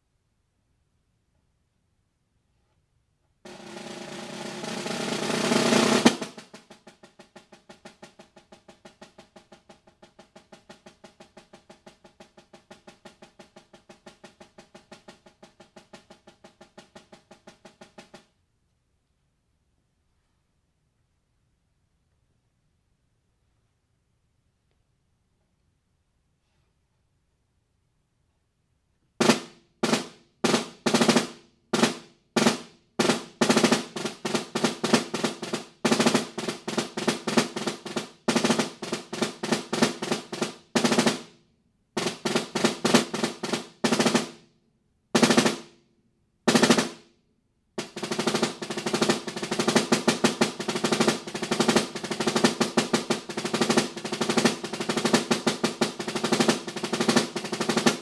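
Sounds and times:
snare drum played with sticks: 3.5s - 18.4s, 29.2s - 41.4s, 42.0s - 44.5s, 45.2s - 45.8s, 46.5s - 47.1s, 47.8s - 58.0s.

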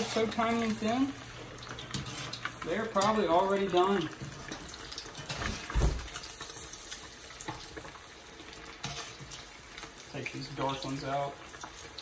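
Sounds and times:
fish deep-frying in hot oil: 0.0s - 12.0s
strainer stirring in pot: 1.7s - 3.2s.

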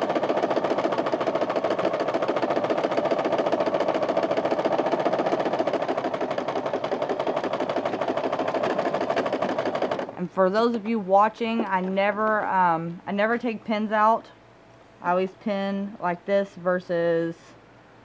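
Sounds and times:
electric sewing machine stitching: 0.0s - 10.2s.

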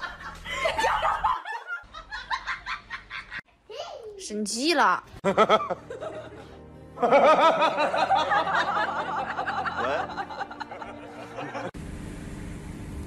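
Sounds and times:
music: 0.0s - 1.3s, 5.2s - 11.7s.

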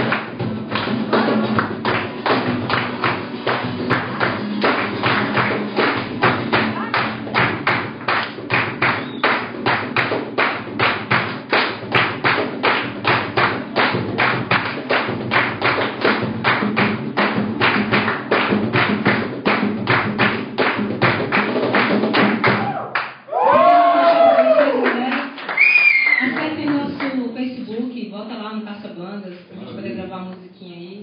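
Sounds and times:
acoustic guitars strummed: 0.0s - 8.5s
cajon beating: 0.0s - 22.8s, 26.2s - 27.3s
person whooping: 22.5s - 24.9s, 25.5s - 26.3s.

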